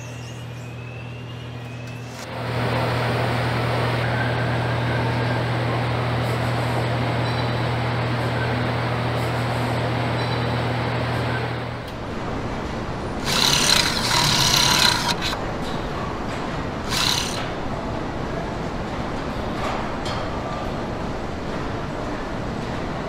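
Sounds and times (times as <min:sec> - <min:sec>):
low machine hum: 0:00.0 - 0:19.7
pneumatic tool running: 0:13.2 - 0:15.4, 0:16.8 - 0:17.5.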